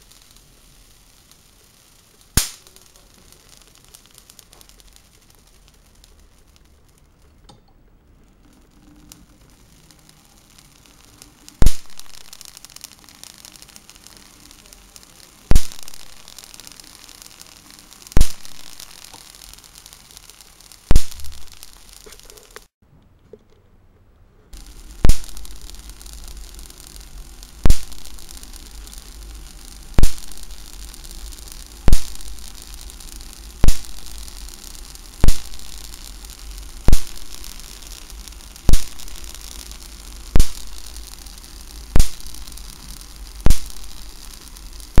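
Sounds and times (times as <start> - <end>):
electric sparks cracking: 0.0 - 7.5, 8.1 - 22.8, 24.5 - 45.0
low hum and hiss: 0.0 - 45.0.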